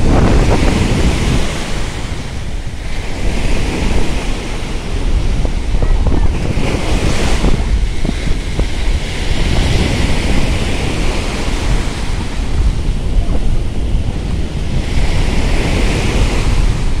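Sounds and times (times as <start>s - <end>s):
small waves breaking on beach: 0.0s - 17.0s
wind rumble on microphone: 0.0s - 17.0s.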